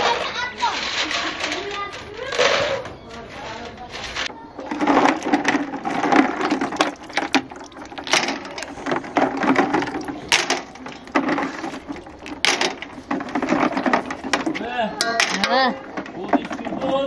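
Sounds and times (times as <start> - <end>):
walnut shells knocking in metal basin: 4.6 - 17.0.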